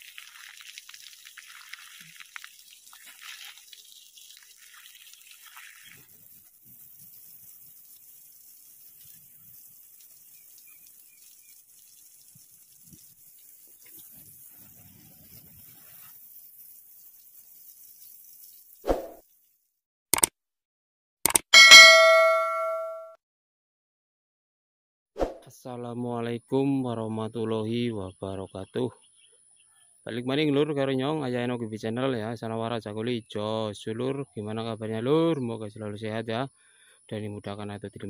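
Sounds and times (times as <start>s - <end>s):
water splashing onto soil: 0.0s - 14.7s
garden hose spraying water: 0.0s - 19.7s.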